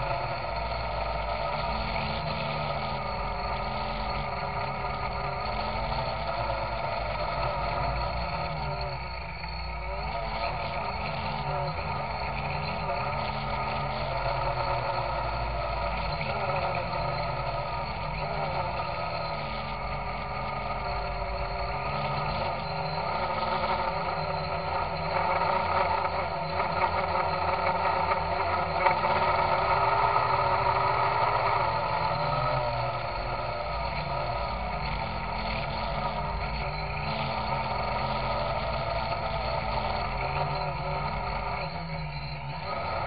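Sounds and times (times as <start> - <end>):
drone motors and propellers: 0.0 - 43.0.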